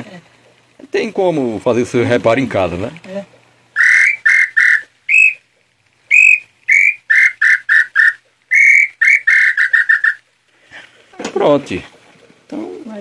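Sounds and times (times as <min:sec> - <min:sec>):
bird call whistle notes: 0:03.8 - 0:05.4, 0:06.1 - 0:10.2.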